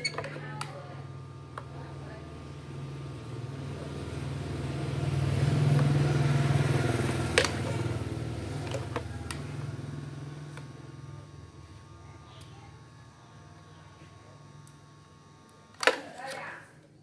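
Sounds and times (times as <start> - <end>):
vehicle engine passing by: 3.4 - 10.6.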